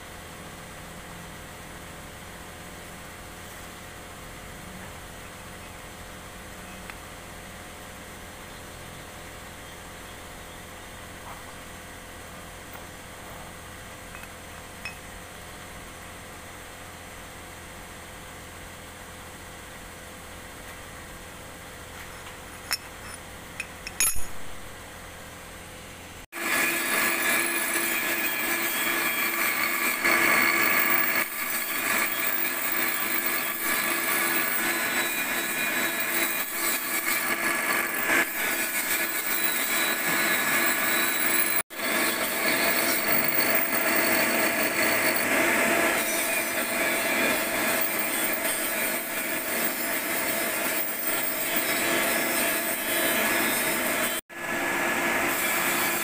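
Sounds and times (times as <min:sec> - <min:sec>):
bench grinder grinding: 0:26.4 - 0:56.0
grinder motor hum: 0:26.4 - 0:56.0.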